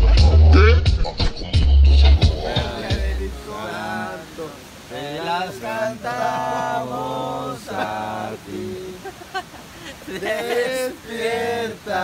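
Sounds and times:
hip-hop music with heavy bass: 0.0s - 3.4s
men singing a cappella: 1.9s - 12.0s.

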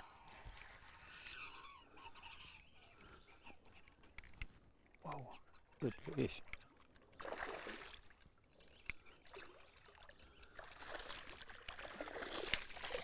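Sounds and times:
fish splashing in water: 10.6s - 13.0s.

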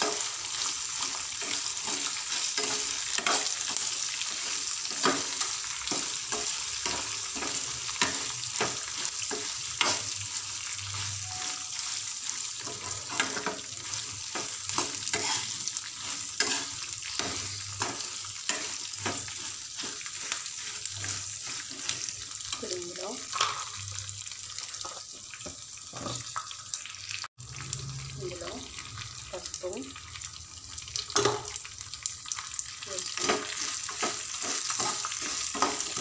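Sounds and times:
metal spatula scraping a pan: 0.0s - 23.8s, 33.2s - 36.0s
oil sizzling in a pan: 0.0s - 36.0s.

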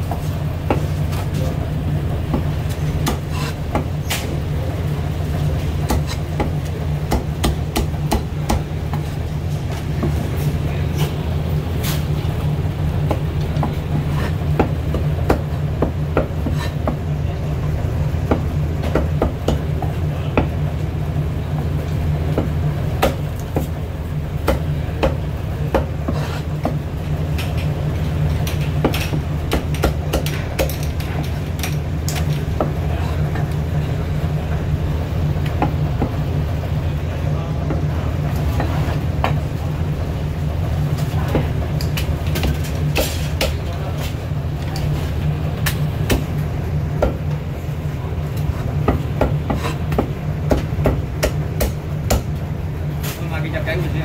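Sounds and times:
low machine hum: 0.0s - 54.0s
cleaver chopping on wooden block: 5.9s - 9.0s, 48.9s - 52.3s.

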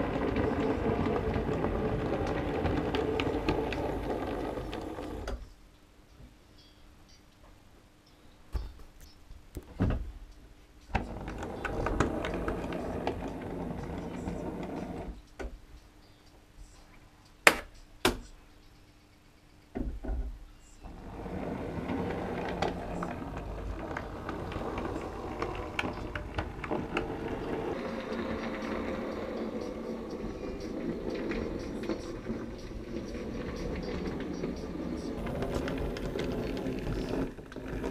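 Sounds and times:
model train rattling on track: 0.0s - 5.2s, 21.0s - 37.9s.

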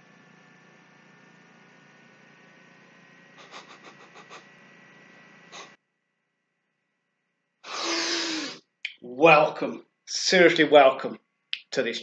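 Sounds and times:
man exhaling with voiced tone: 7.6s - 8.6s.

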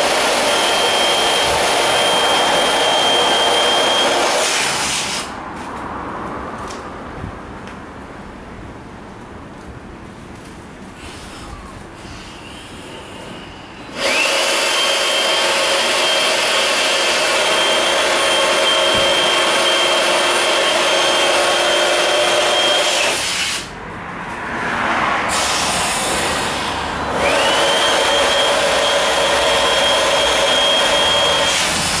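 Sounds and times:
inflator pump motor whine: 0.0s - 5.2s, 12.2s - 23.5s, 25.3s - 32.0s
air rushing: 23.6s - 29.7s.

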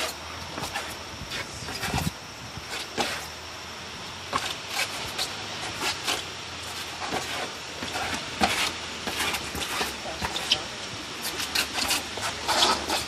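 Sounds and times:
staff swishing: 4.3s - 10.6s, 11.2s - 13.0s
footsteps on rubber court: 4.3s - 13.0s.

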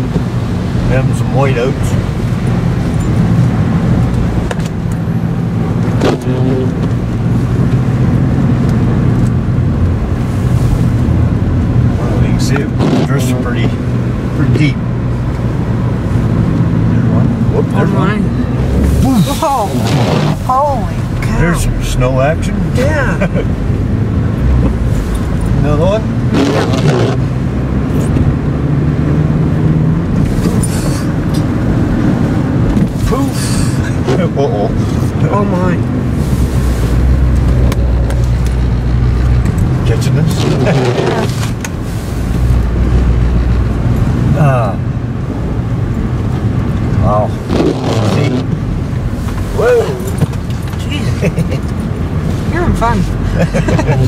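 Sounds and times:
car engine and tyre hum: 0.0s - 54.0s
tyre and wind noise: 45.0s - 53.2s.

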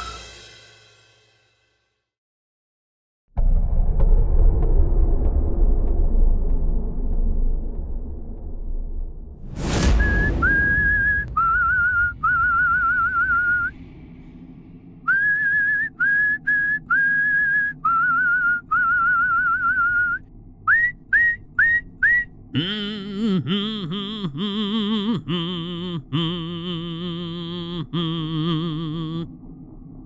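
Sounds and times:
short whoosh: 9.0s - 18.2s
person whistling a tune: 10.0s - 13.8s, 15.0s - 29.2s.

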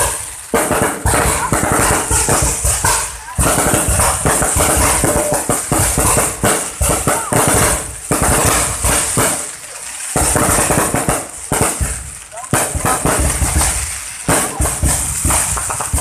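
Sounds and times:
fireworks bangs and crackling: 0.0s - 16.0s.

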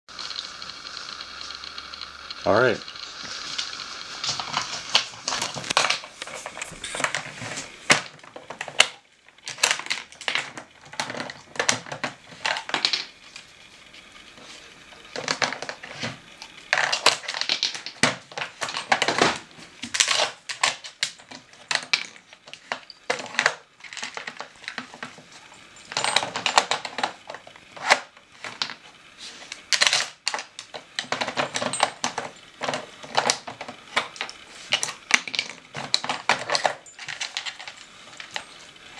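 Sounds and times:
hard plastic pieces clacking: 0.1s - 7.3s, 7.9s - 13.1s, 29.6s - 38.9s.

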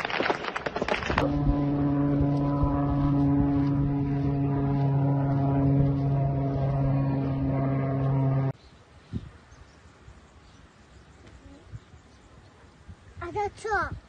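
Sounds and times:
drone engine buzzing: 1.2s - 8.6s.

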